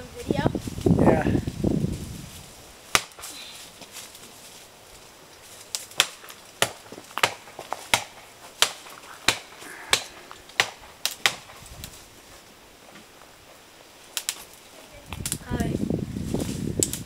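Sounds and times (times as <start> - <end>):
axe chopping wood: 2.9 - 3.3, 5.9 - 11.6.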